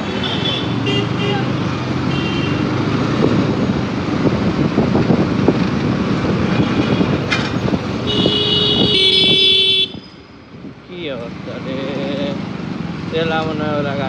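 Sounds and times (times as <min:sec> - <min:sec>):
motorcycle engine and road noise: 0:00.0 - 0:14.0
vehicle horn: 0:08.0 - 0:10.0.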